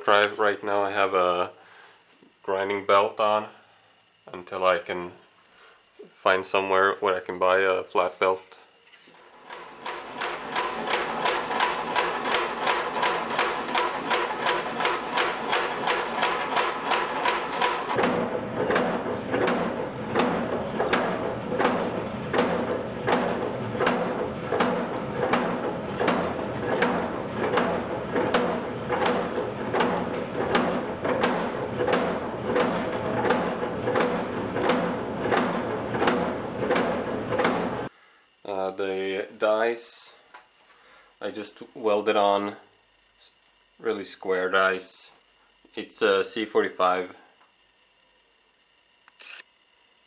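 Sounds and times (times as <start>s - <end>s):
power hammer striking: 9.5s - 37.9s.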